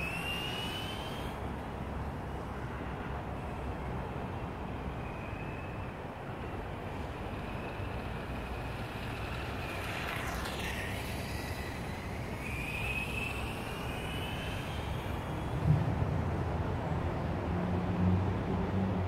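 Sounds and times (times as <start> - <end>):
model motorcycle motor whine: 0.0 - 1.8, 6.2 - 15.6.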